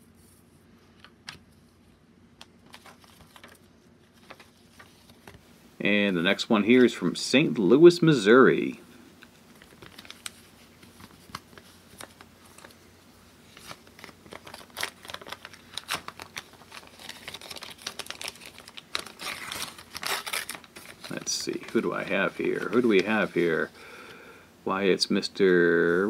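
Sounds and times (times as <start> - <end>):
paper envelope crinkling: 2.4 - 5.5, 9.2 - 12.8, 13.4 - 23.8.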